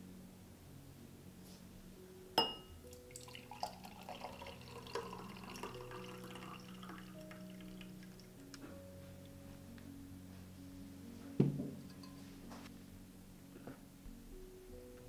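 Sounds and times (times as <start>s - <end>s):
glass clinking: 2.4s - 7.4s, 11.8s - 12.3s
water dripping in a glass: 2.4s - 8.6s.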